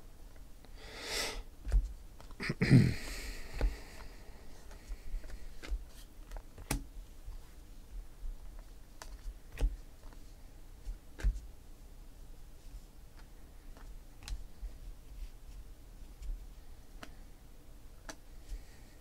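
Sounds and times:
person sniffing: 0.8 - 1.5, 2.4 - 4.2
cards being flipped: 3.6 - 6.8.

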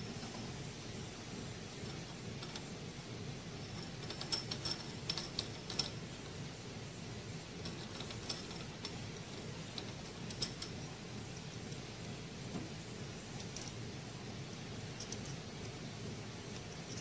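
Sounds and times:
low workshop machine hum: 0.0 - 17.0
light metallic clicks of tools: 13.4 - 13.8, 14.9 - 15.8.

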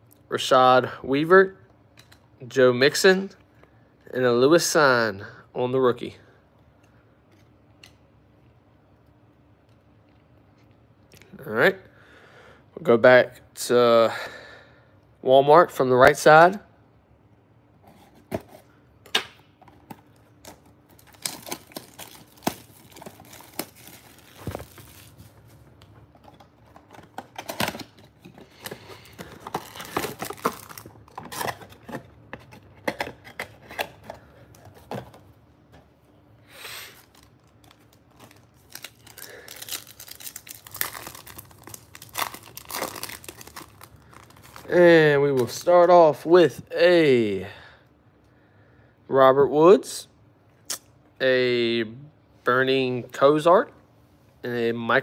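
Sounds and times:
foil packs crinkling: 20.1 - 34.8, 36.8 - 44.8
foil tearing: 36.9 - 44.7.

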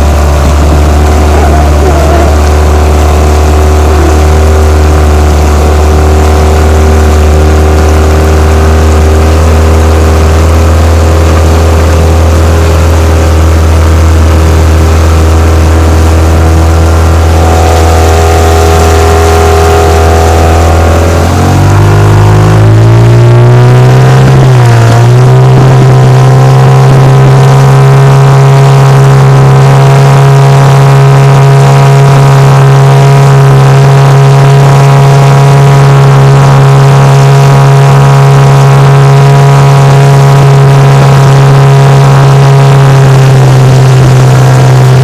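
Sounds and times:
outboard motor running: 0.0 - 45.0.

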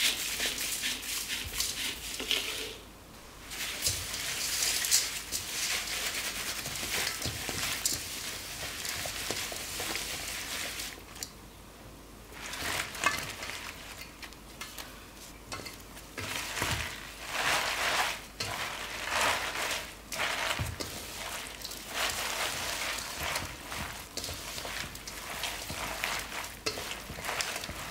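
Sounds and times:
seasoning rustling in steel bowl: 0.0 - 2.8, 3.4 - 11.3, 12.3 - 27.9
cabbage leaves squished in bowl: 16.2 - 27.9.

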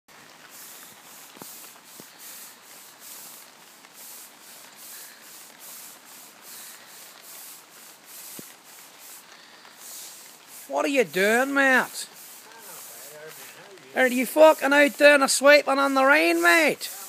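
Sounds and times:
push broom scraping wet paving: 0.1 - 17.0.

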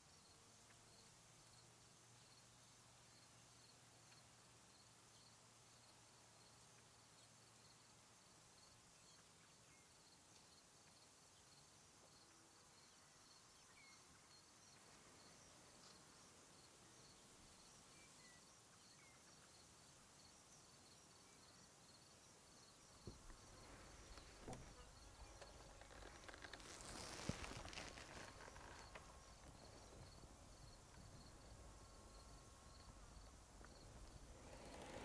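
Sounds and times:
faint insect chirping: 0.0 - 35.0
faint bird chirps: 8.6 - 35.0
rustling: 23.1 - 32.4, 33.2 - 35.0.

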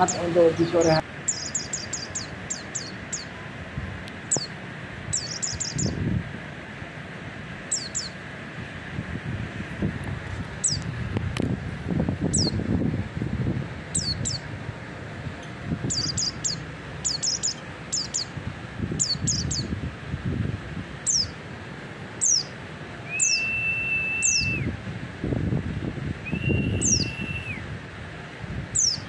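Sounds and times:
bird chirping: 0.0 - 3.4, 5.1 - 6.0, 7.7 - 8.2, 13.9 - 14.5, 15.8 - 18.3, 19.0 - 19.7, 21.0 - 21.4, 22.2 - 22.5, 23.1 - 24.6, 26.3 - 27.3, 28.8 - 29.0
long whistled note: 23.1 - 24.7, 26.2 - 27.6.

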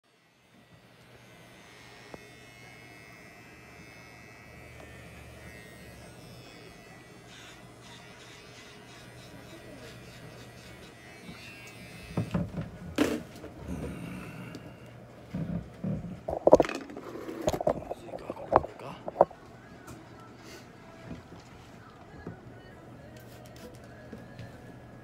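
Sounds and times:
electric pet clippers buzzing: 0.1 - 15.6.

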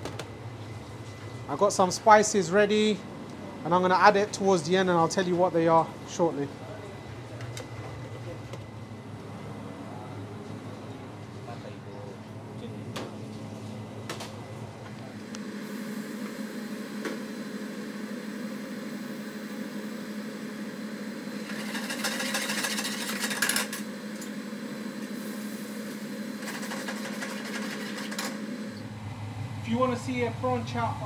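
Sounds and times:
kitchen extractor hum: 0.0 - 31.0.

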